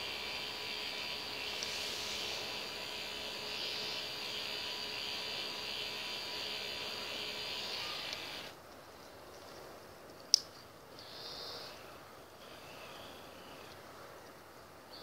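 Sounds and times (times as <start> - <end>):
toy ride motor whirring: 0.0 - 8.6
faint steady hum: 0.0 - 15.0
small click: 10.1 - 10.6.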